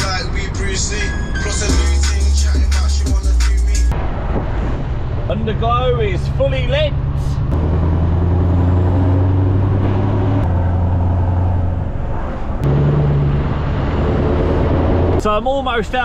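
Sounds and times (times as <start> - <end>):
lorry diesel engine droning: 0.0 - 15.2.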